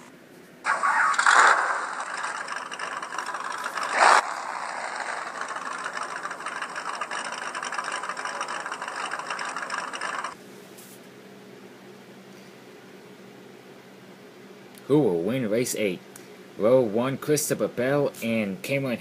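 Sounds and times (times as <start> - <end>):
rough car engines running: 0.7 - 10.4.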